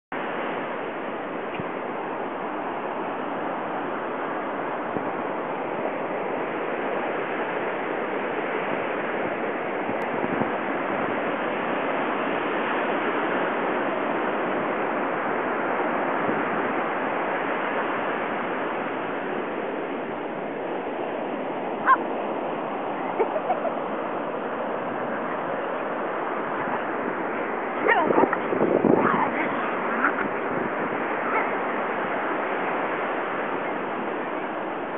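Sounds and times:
ocean surf washing on beach: 0:00.1 - 0:34.9
dog barking and yipping: 0:21.8 - 0:22.1, 0:27.8 - 0:30.4, 0:31.2 - 0:31.7.

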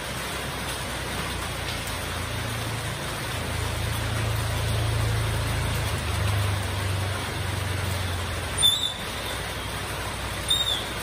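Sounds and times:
heavy rain falling: 0:00.0 - 0:11.0.

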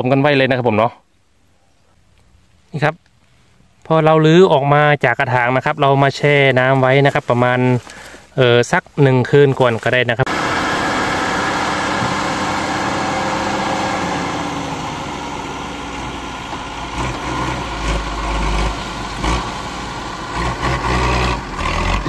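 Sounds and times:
truck engine running: 0:09.5 - 0:22.0.

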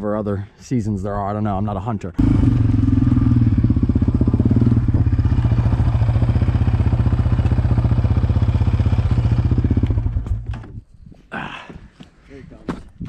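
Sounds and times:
single-cylinder engine running: 0:02.2 - 0:10.4.

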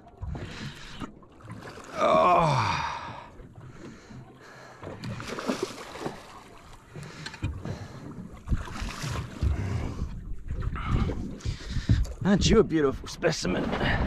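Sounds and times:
fish thrashing and splashing: 0:00.3 - 0:11.6
low thumps and knocks: 0:06.9 - 0:12.6.

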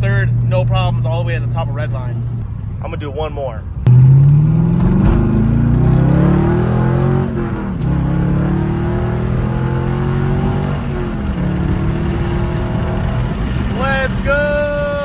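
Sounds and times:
car engine revving hard: 0:03.9 - 0:13.9.

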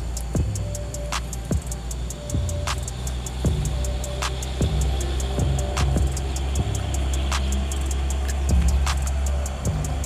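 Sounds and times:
hi-hat ticks: 0:00.0 - 0:10.0
snare hits: 0:07.3 - 0:09.3.

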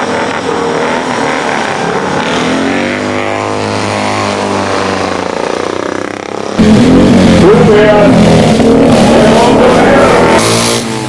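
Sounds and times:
loud engine: 0:00.0 - 0:11.0
sidecar motorcycles passing: 0:00.0 - 0:11.0.

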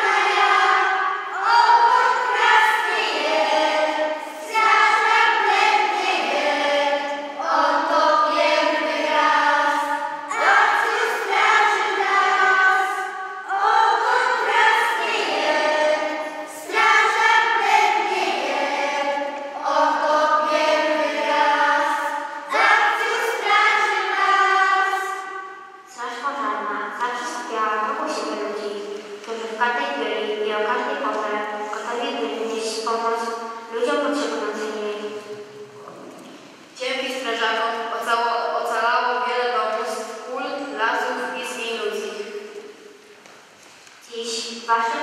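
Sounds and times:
children's choir singing: 0:00.0 - 0:35.9.

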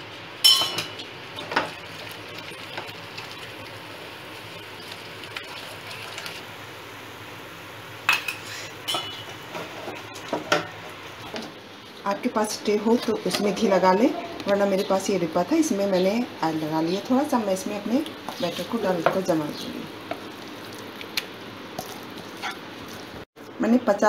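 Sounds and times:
low sizzle: 0:00.0 - 0:24.0.

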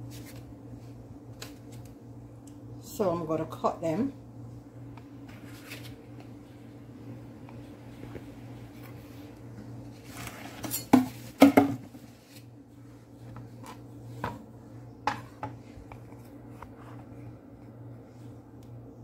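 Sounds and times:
steady low hum: 0:00.0 - 0:19.0
utensils clattering on countertop: 0:10.4 - 0:11.8.

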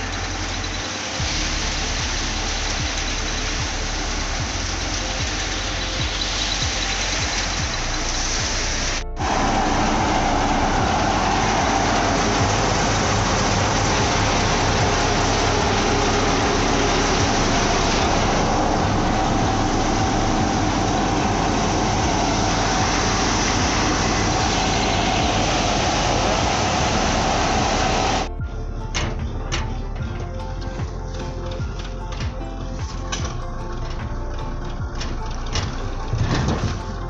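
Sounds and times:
thresher mechanical whir: 0:00.0 - 0:28.3
tractor engine drone: 0:00.0 - 0:37.0.

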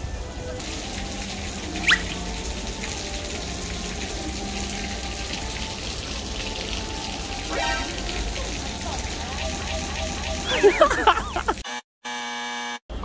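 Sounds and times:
water splashing from fountain: 0:00.0 - 0:11.6.

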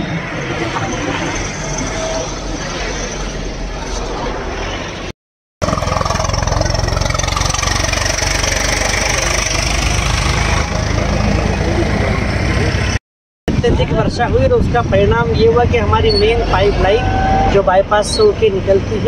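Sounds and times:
roadside traffic: 0:00.0 - 0:19.0
heavy engine idling: 0:05.6 - 0:13.0.

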